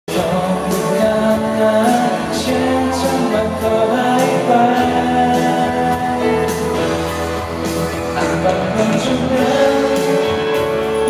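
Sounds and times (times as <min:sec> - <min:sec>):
instrumental backing: 0:00.1 - 0:11.0
man singing pop song: 0:00.1 - 0:11.0.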